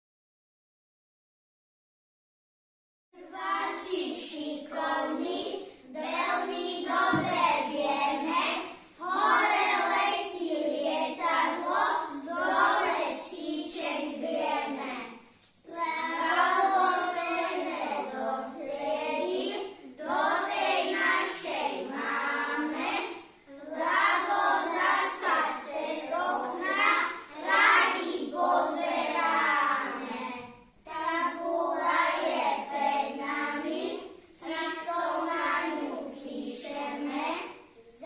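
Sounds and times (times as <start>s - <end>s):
young children singing together: 3.2s - 38.0s.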